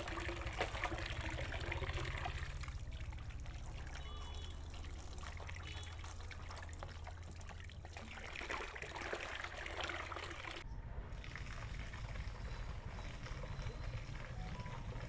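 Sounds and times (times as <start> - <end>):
water running and trickling: 0.0 - 15.0.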